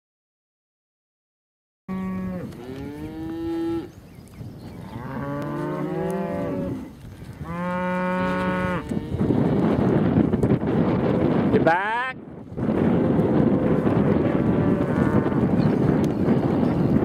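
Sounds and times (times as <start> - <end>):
cows mooing: 1.9 - 4.0, 4.7 - 9.9, 13.4 - 15.6.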